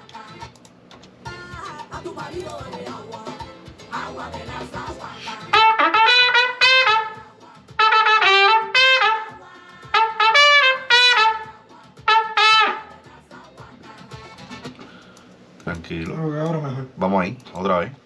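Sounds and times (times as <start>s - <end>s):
trumpet playing detached notes: 5.5s - 13.0s.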